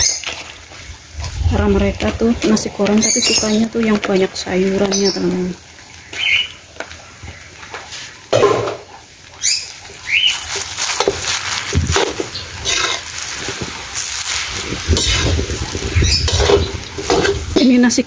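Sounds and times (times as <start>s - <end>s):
metal spatula scraping a wok: 10.6s - 17.6s.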